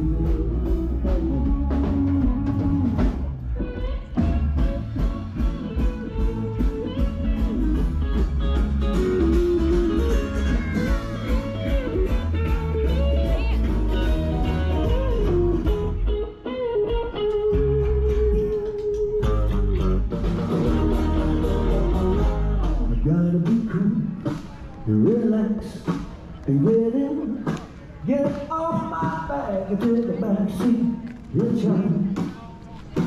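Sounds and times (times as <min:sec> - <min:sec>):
electric guitar lead line: 0:00.0 - 0:27.6
bass and drums: 0:00.0 - 0:33.0.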